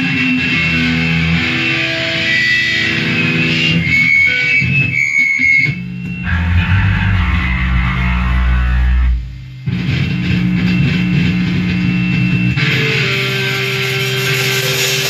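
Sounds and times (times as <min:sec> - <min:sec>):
electric guitar held notes: 0:00.0 - 0:15.0
low bass notes: 0:05.7 - 0:14.3.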